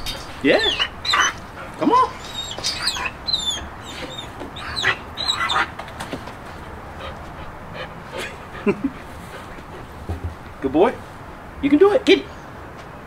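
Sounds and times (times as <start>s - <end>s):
puppy whining: 0.0s - 5.8s.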